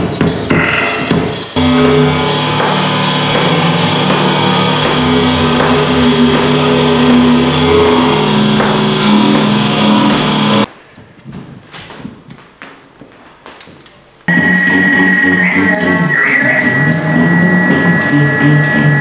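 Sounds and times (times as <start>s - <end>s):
layered music with low notes: 0.4s - 10.7s, 14.3s - 19.0s.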